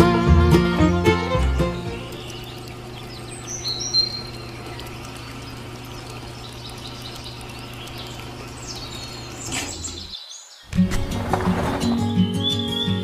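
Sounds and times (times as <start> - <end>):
bird chirps: 1.8 - 10.8, 12.0 - 13.0.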